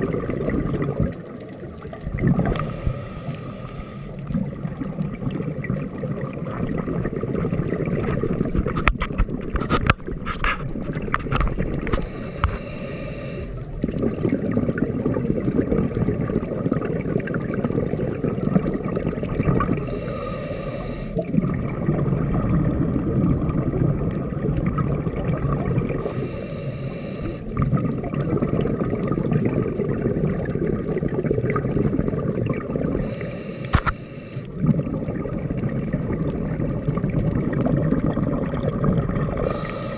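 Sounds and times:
gurgling exhaled bubbles: 0:00.0 - 0:39.9
regulator hissing inhale: 0:02.4 - 0:04.2, 0:12.0 - 0:13.6, 0:19.8 - 0:21.2, 0:26.0 - 0:27.5, 0:33.0 - 0:34.5, 0:39.4 - 0:39.9.

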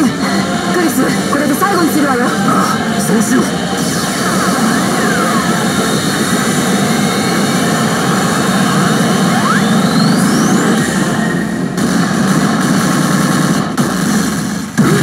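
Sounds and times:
din of machines and steel balls: 0:00.0 - 0:15.0
gliding electronic tones: 0:03.2 - 0:11.6.

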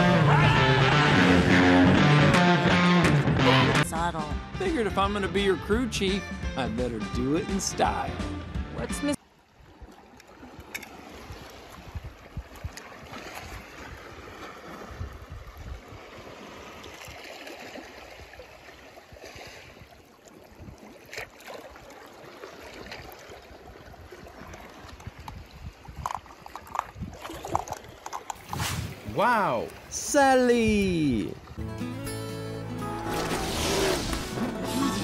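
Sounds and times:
water sloshing and trickling: 0:09.2 - 0:30.1, 0:32.8 - 0:35.0.

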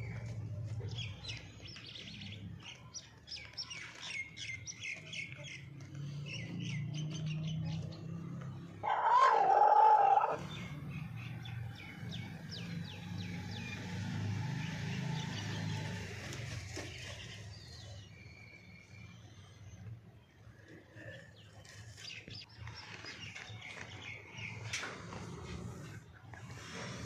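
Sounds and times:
small birds chirping: 0:00.0 - 0:27.0
rooster crowing: 0:08.8 - 0:10.4.

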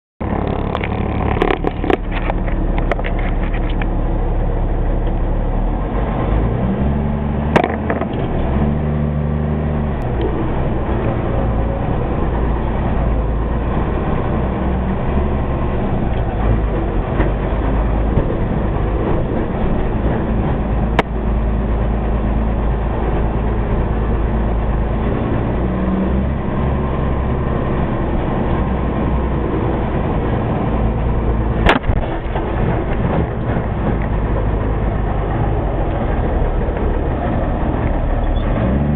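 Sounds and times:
knocks and rattles: 0:00.2 - 0:03.9, 0:07.5 - 0:08.4
diesel truck engine running: 0:00.2 - 0:38.9.

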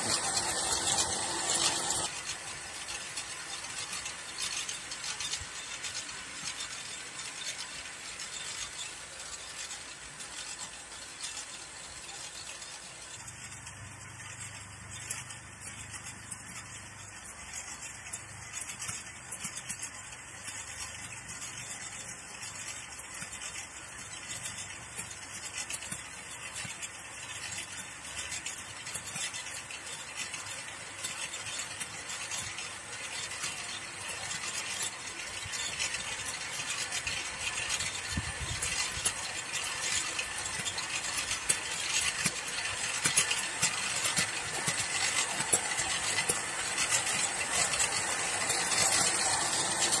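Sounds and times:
electric cultivator motor whine: 0:00.0 - 0:02.1, 0:43.3 - 0:50.0
metal and clods clinking: 0:00.0 - 0:07.1, 0:07.7 - 0:50.0.

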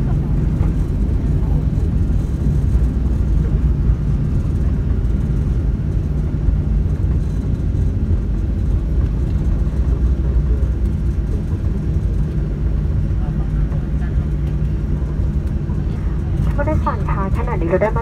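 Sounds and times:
airplane engine noise: 0:00.0 - 0:18.0
wheels rumbling on runway: 0:00.0 - 0:18.0.

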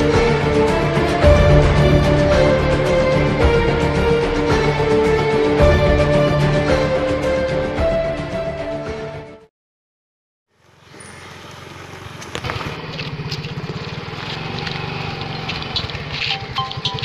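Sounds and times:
scooter engine puttering: 0:10.6 - 0:17.0.

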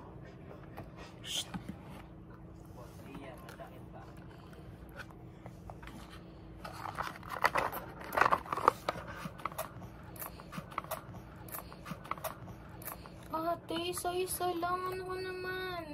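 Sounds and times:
cardboard box rustling: 0:05.7 - 0:09.5.

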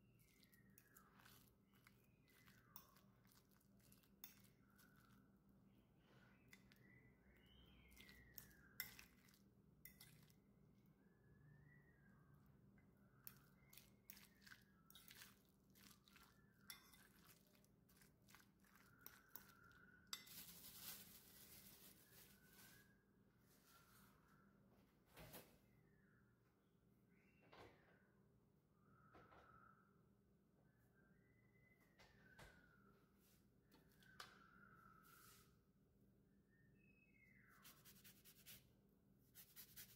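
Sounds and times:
fork stirring in a bowl: 0:00.1 - 0:05.2, 0:07.8 - 0:10.4, 0:13.2 - 0:21.0
plastic wrap crinkling: 0:20.2 - 0:22.8.

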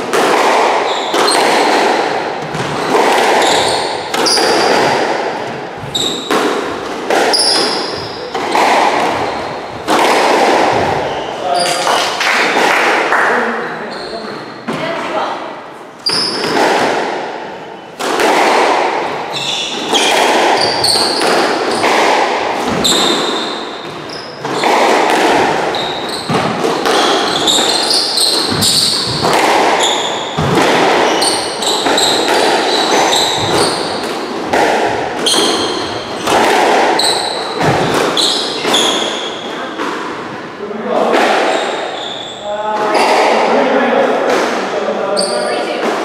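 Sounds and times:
squash ball hitting rackets and walls: 0:00.0 - 0:15.2, 0:15.8 - 0:46.0
shoes squeaking on wooden floor: 0:00.8 - 0:10.0, 0:10.7 - 0:12.2, 0:13.7 - 0:15.2, 0:16.0 - 0:16.7, 0:19.1 - 0:34.3, 0:34.9 - 0:39.9, 0:41.4 - 0:43.4, 0:45.0 - 0:45.8.

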